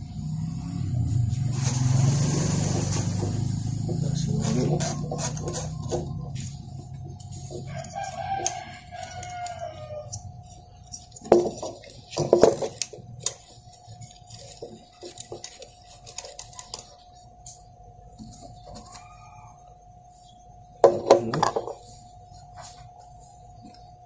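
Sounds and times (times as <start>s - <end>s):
faint steady hum: 3.1s - 24.0s
hands handling welder wire feeder: 4.4s - 17.7s.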